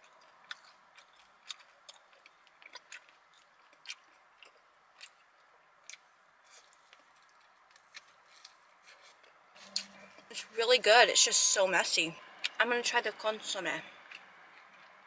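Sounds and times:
crunchy chewing: 0.0 - 10.3, 13.8 - 15.0.

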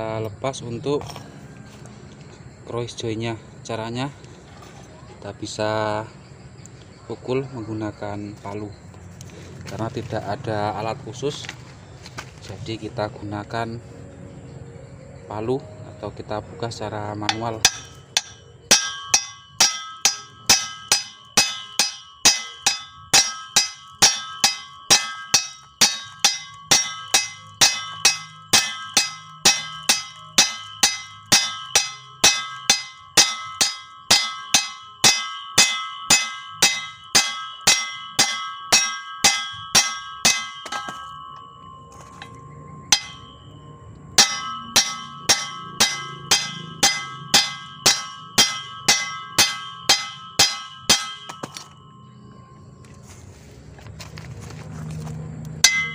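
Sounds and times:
hammer striking steel: 17.2 - 52.2, 55.6 - 55.9.

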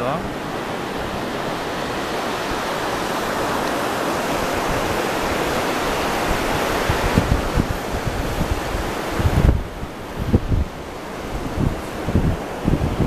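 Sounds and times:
surf washing over sand: 0.0 - 13.0
wind buffeting microphone: 0.0 - 13.0.

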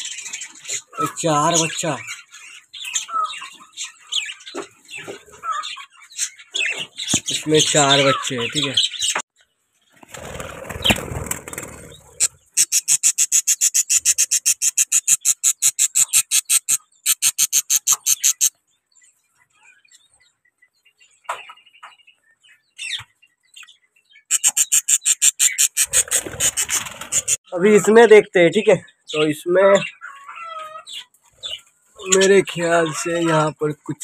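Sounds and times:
budgerigars calling rapidly: 0.0 - 9.2, 11.6 - 18.6, 22.8 - 33.8.

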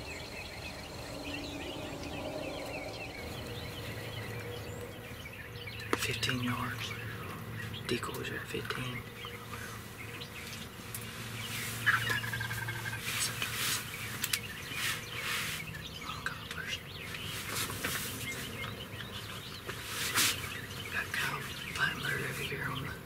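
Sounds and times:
wild birds calling: 0.0 - 23.0
turkey gobbling: 11.8 - 13.1.

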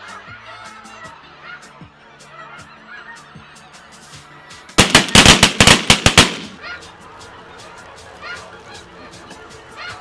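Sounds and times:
shotgun blasts: 4.8 - 6.6.

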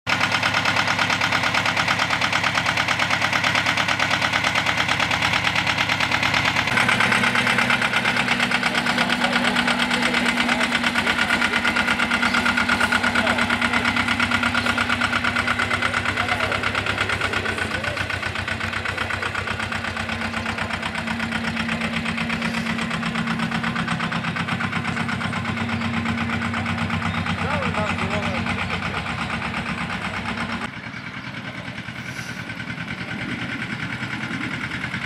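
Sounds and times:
small diesel engine running: 0.1 - 35.0.

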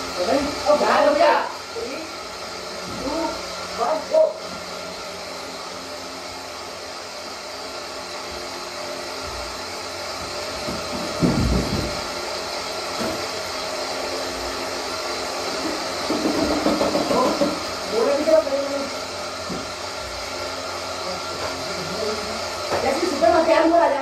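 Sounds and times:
electric fan humming: 0.0 - 24.0
heavy thud of landing on floor: 10.7 - 12.0.

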